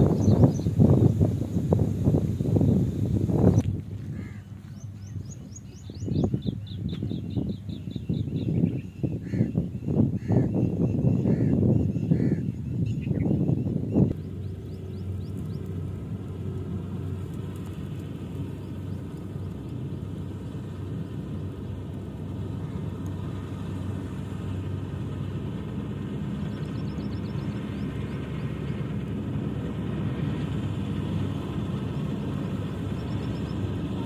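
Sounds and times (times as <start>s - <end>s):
combine harvester running: 0.0s - 12.8s, 13.5s - 34.0s.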